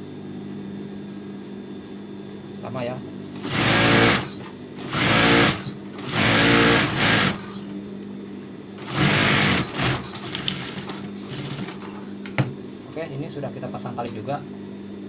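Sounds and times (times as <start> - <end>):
steady low hum: 0.0 - 15.0
sewing machine stitching: 3.4 - 7.6, 8.8 - 11.9.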